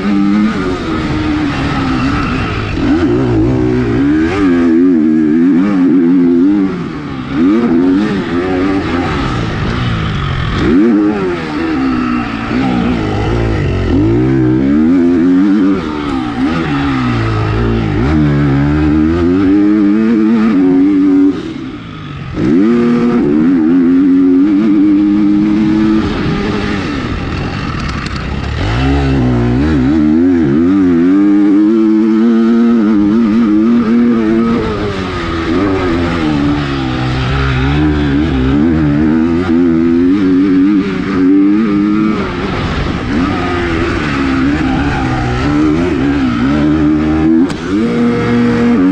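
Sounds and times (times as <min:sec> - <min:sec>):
motorbike engine revving: 0:00.0 - 0:48.9.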